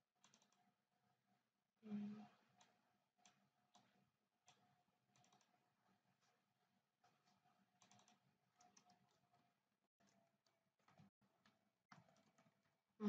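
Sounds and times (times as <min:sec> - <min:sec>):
keyboard typing: 0:00.2 - 0:00.7, 0:02.6 - 0:05.6, 0:07.0 - 0:09.4, 0:10.0 - 0:12.6.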